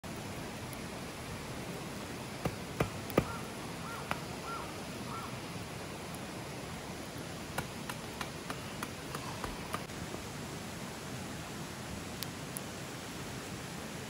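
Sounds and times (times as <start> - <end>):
campfire crackling and popping: 0.1 - 4.5, 5.7 - 9.9, 11.8 - 13.5
bird calls: 2.8 - 5.4, 7.6 - 9.9.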